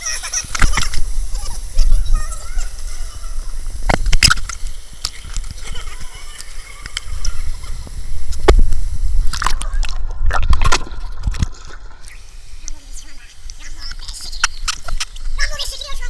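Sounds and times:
stream water splashing: 0:03.5 - 0:15.3.

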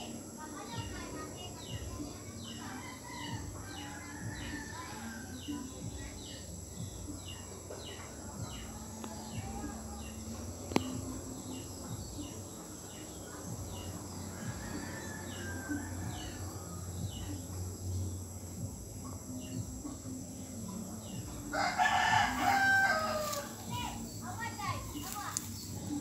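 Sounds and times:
rooster crowing: 0:21.5 - 0:23.6.

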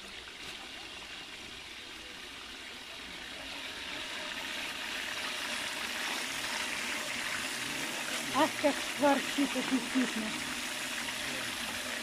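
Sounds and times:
meat sizzling in hot oil: 0:02.6 - 0:12.0.

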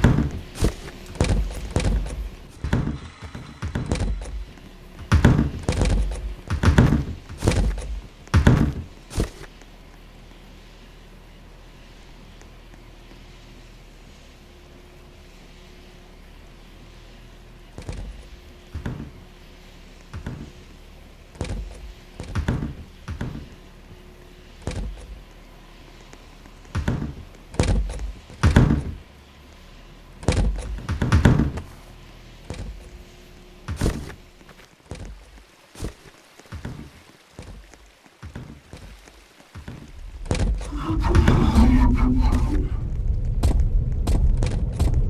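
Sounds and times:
irregular thuds and knocks: 0:00.0 - 0:09.6, 0:17.6 - 0:25.3, 0:26.0 - 0:29.1, 0:30.2 - 0:31.8, 0:32.4 - 0:45.0.

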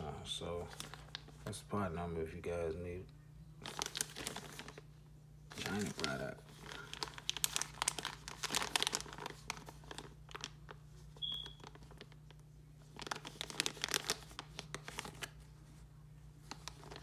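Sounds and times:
packaging crinkling: 0:00.6 - 0:01.6, 0:03.6 - 0:04.9, 0:05.5 - 0:15.6, 0:16.4 - 0:17.0.

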